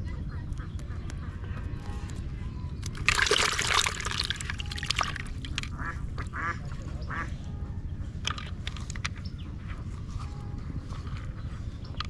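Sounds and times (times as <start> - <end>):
water splashing in plastic bucket: 2.8 - 5.8
ducks quacking: 5.7 - 7.4.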